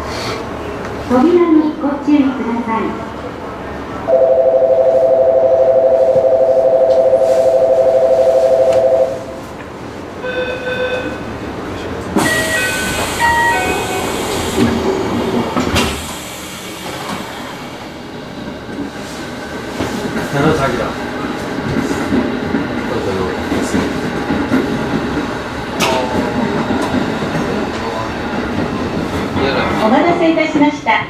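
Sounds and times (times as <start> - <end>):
two-tone electronic warning: 4.1 - 9.4
short beeps: 10.3 - 11.2.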